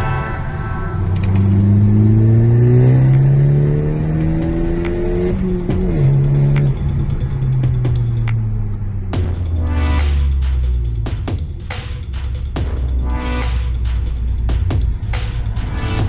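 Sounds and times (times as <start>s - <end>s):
car engine accelerating: 0.0s - 11.5s.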